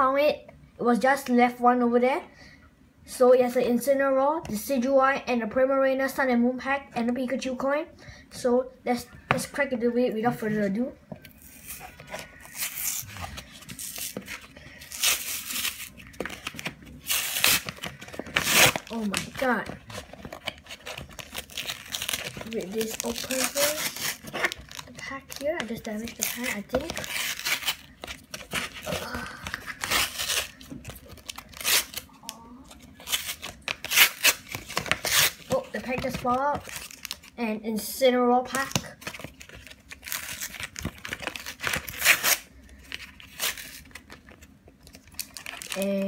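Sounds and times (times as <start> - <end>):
cardboard being torn: 11.4 - 32.0, 33.0 - 37.2, 39.0 - 42.4
cardboard being torn by hand: 17.0 - 19.5.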